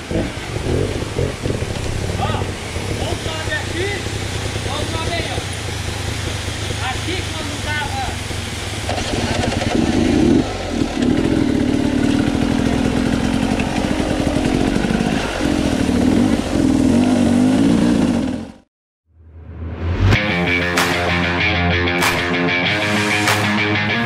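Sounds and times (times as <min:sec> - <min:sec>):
dirt bike engine revving: 0:00.0 - 0:18.7.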